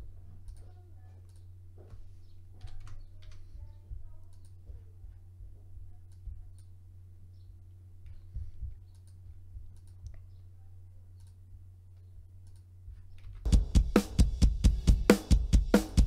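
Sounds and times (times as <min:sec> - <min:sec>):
low steady hum: 0:00.0 - 0:15.1
computer mouse clicks: 0:00.5 - 0:01.5, 0:04.3 - 0:04.6, 0:08.9 - 0:09.2, 0:09.8 - 0:10.4, 0:11.2 - 0:11.4, 0:12.4 - 0:13.4
metal music drum kit: 0:13.5 - 0:16.0.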